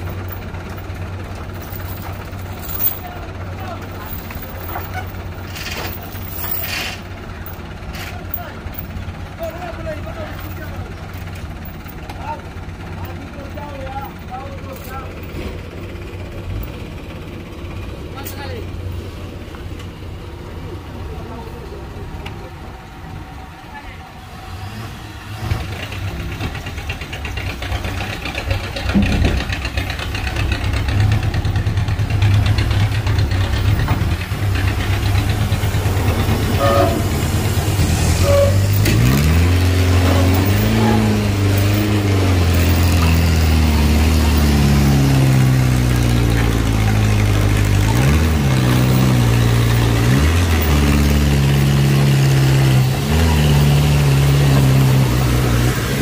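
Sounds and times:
diesel truck engine revving: 0.0s - 56.0s
truck horn toot: 36.4s - 41.4s.

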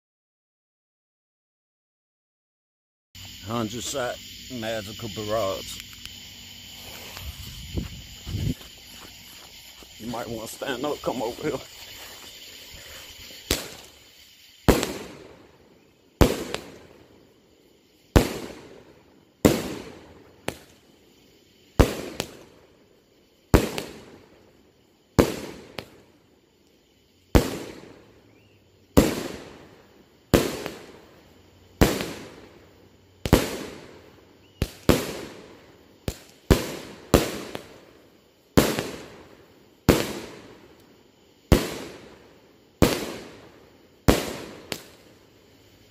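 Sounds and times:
fireworks bangs: 5.2s - 17.2s, 18.1s - 21.0s, 21.7s - 22.8s, 23.5s - 24.5s, 25.1s - 26.1s, 27.3s - 28.1s, 28.9s - 40.8s, 41.4s - 45.2s.

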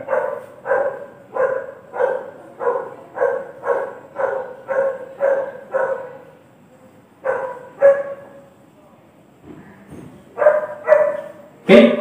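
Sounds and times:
dog barking: 0.0s - 6.3s, 7.2s - 8.4s, 10.4s - 11.4s.

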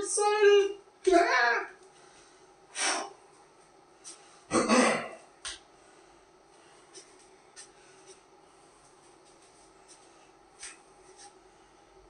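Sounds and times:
man clearing throat and huffing: 4.5s - 5.2s.

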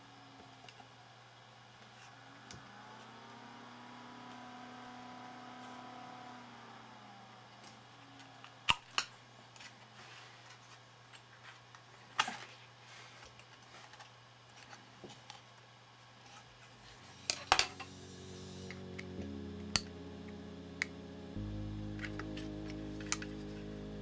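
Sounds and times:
low steady hum: 16.2s - 24.0s
background music: 17.0s - 24.0s.

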